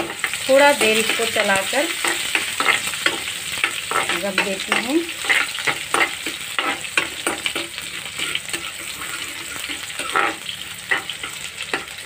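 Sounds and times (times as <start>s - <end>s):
food sizzling in hot oil: 0.0s - 12.0s
metal spoon scraping a pan: 0.0s - 12.0s.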